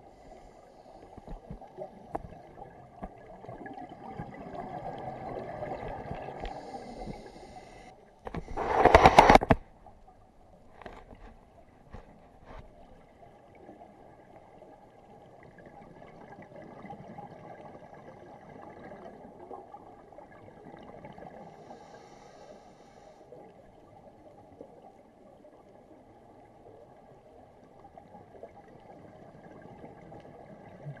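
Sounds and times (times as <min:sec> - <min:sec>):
muffled underwater rush: 0:00.0 - 0:10.6.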